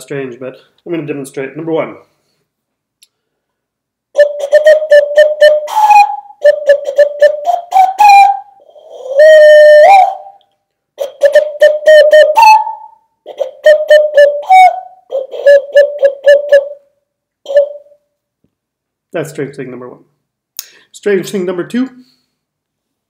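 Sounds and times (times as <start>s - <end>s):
hand whistle tones: 4.2s - 18.1s.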